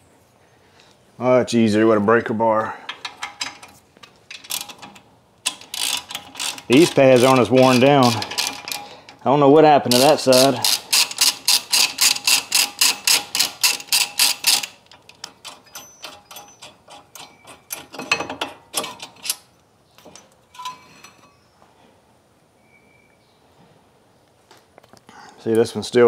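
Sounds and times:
metal brake parts clanking: 0:02.8 - 0:09.2, 0:20.1 - 0:21.4
socket ratchet clicking: 0:02.9 - 0:09.2, 0:09.9 - 0:17.9.

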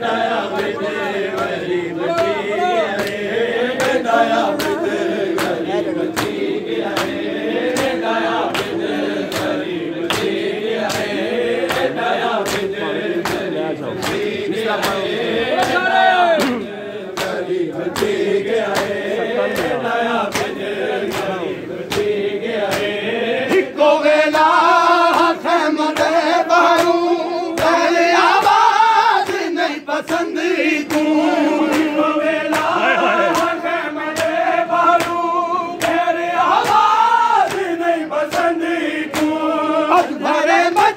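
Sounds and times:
men chanting in unison: 0:00.0 - 0:40.9
hands slapping chests: 0:00.5 - 0:23.7, 0:24.3 - 0:28.6, 0:29.2 - 0:40.2.

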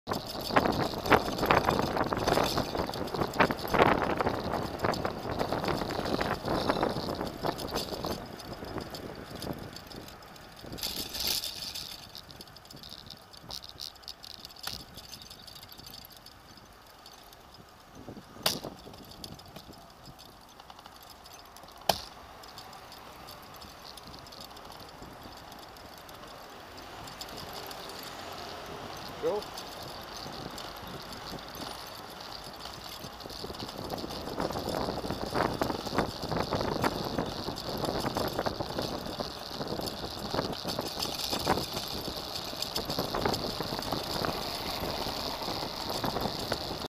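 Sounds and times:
road and wind noise: 0:00.0 - 0:46.9
tricycle rolling on asphalt: 0:00.1 - 0:46.9.

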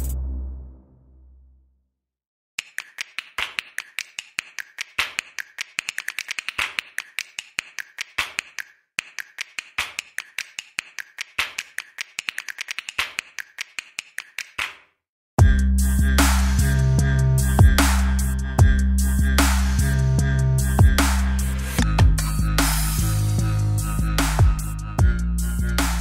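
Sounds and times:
electronic music with heavy bass: 0:00.0 - 0:00.8, 0:15.4 - 0:26.0
rapid keyboard key clicks: 0:02.6 - 0:14.8.

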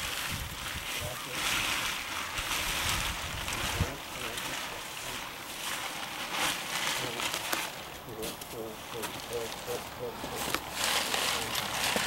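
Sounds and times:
wind buffeting microphone: 0:00.0 - 0:04.0.

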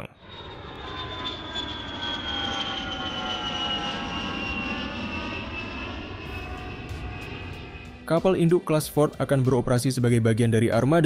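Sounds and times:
jet fighter flying past: 0:00.0 - 0:08.6.

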